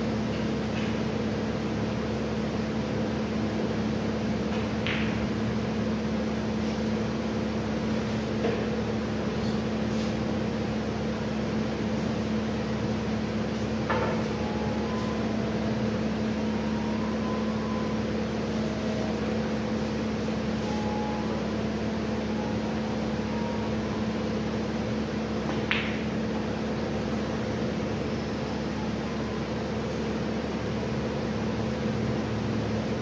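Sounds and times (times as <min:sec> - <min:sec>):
mechanical room hum: 0:00.0 - 0:33.0
cue striking ball: 0:04.5 - 0:05.3, 0:25.4 - 0:26.3.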